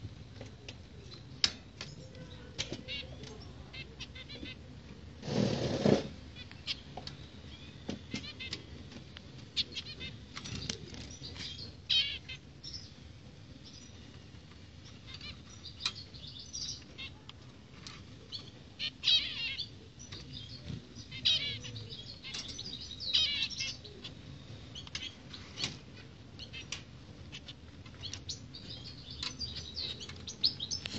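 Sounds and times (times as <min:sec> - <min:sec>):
small clicks of birds hopping: 0:00.3 - 0:04.0, 0:07.9 - 0:11.6, 0:14.4 - 0:18.7, 0:24.8 - 0:30.9
finches chirping: 0:06.3 - 0:14.2, 0:14.8 - 0:17.3, 0:18.0 - 0:30.9.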